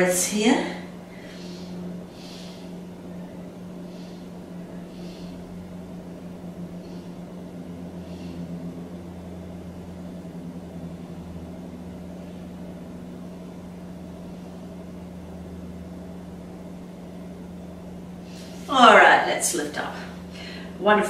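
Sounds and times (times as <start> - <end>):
low electrical hum: 0.0 - 21.0
soft breaths: 0.8 - 9.0.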